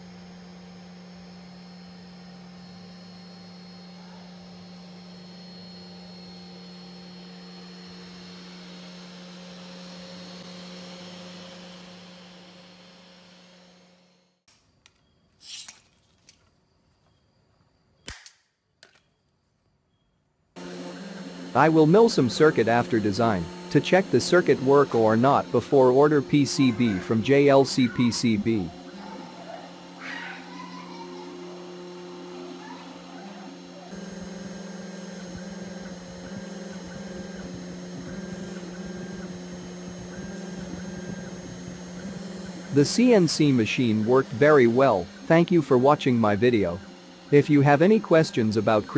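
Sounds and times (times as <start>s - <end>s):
spindle hum: 0.0s - 14.2s, 20.6s - 48.9s
higher axis motor whine: 0.0s - 14.4s, 20.6s - 48.9s
brief scrape: 15.4s - 16.0s
circuit board snapping: 18.0s - 19.0s.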